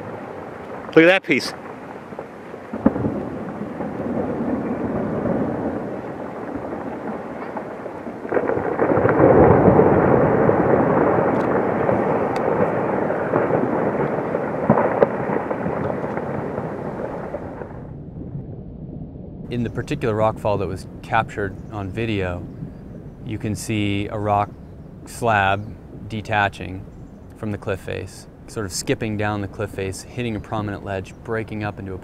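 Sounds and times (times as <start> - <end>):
rumble of falling rock: 1.6 - 19.5.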